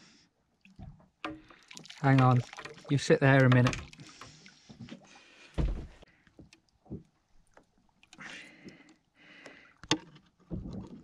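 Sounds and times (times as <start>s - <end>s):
thump on boat deck: 5.6s - 6.0s.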